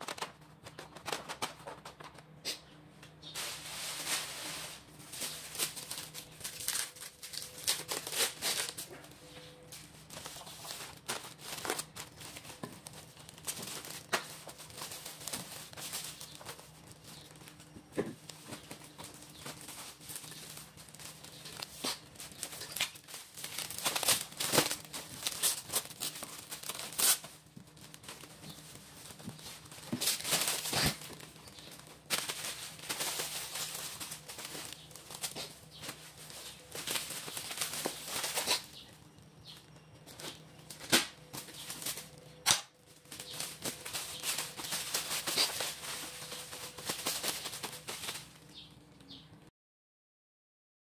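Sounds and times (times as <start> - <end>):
cling film crinkling: 3.4 - 49.2.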